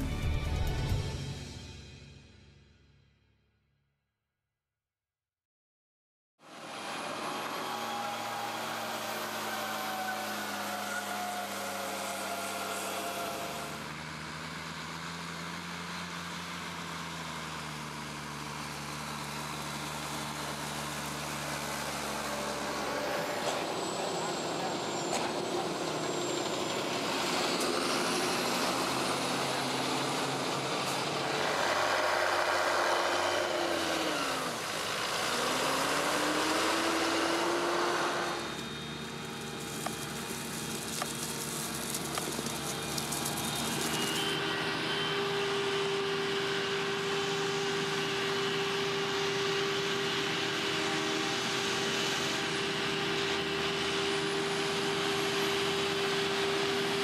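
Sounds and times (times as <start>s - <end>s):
tractor diesel engines: 0.0s - 1.6s, 6.4s - 57.0s
steady whine: 19.5s - 56.9s
forage harvester chopping: 34.6s - 44.4s.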